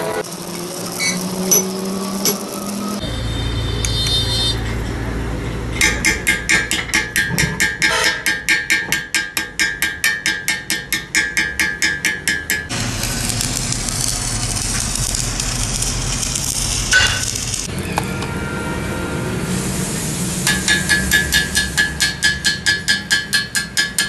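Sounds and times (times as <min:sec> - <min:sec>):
welding arc hissing: 0:00.0 - 0:04.6, 0:12.7 - 0:17.7, 0:19.5 - 0:22.2
chipping hammer tapping metal: 0:05.8 - 0:17.7, 0:20.5 - 0:24.0.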